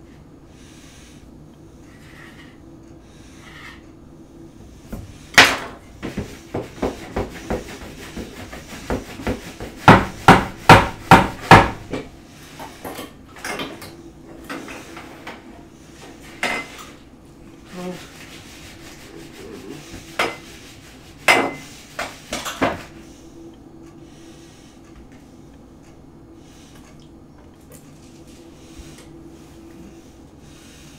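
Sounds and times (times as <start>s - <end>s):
sharp knocks of cookware: 8.9s - 12.1s, 21.2s - 22.8s.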